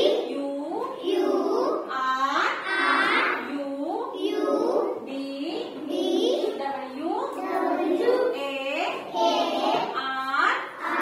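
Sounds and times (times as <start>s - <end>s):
children chanting in unison: 0.0s - 0.3s, 1.0s - 1.9s, 2.6s - 3.5s, 4.2s - 5.0s, 7.4s - 8.3s, 9.0s - 10.0s, 10.8s - 11.0s.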